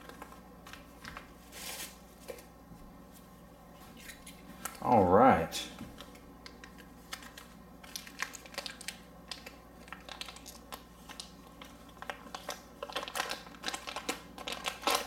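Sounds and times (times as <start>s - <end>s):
bubble wrap crinkling: 0.0s - 2.4s, 6.0s - 15.0s.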